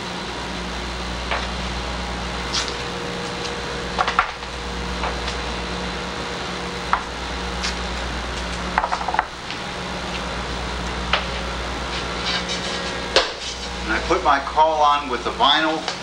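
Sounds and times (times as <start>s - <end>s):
low electrical hum: 0.0s - 16.0s
masking tape ripping: 2.5s - 2.8s.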